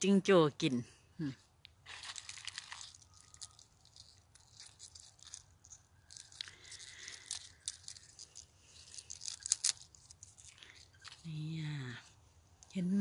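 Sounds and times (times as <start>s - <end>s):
leaves crackling and rustling: 1.8s - 12.0s.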